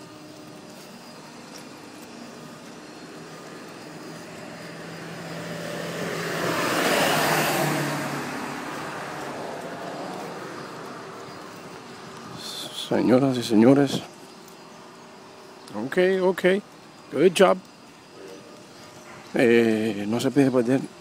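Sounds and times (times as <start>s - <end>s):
car driving past: 3.6s - 12.5s.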